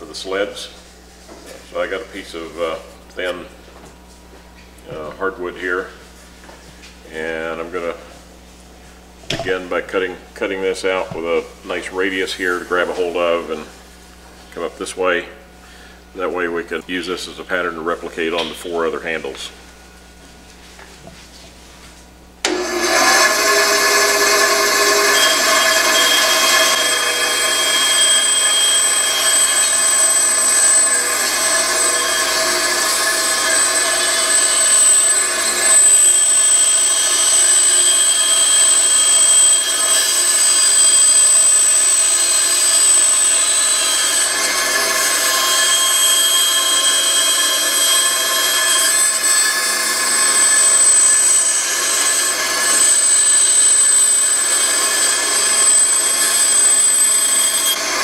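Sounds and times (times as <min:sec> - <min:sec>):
bandsaw cutting wood: 0:22.4 - 0:58.0.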